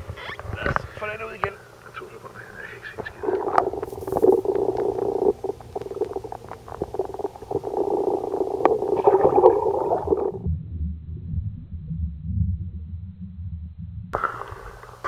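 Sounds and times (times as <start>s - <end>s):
muffled underwater noise: 0.0s - 10.4s, 14.2s - 15.0s
low churning rumble: 0.0s - 15.0s
steady hum: 0.0s - 15.0s.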